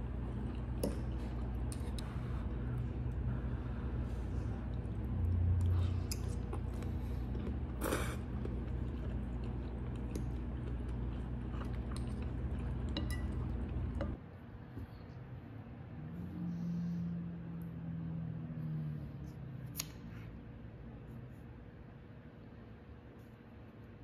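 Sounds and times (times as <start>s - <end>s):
person chewing pasta: 0.0s - 14.2s
steady low hum: 0.0s - 24.0s.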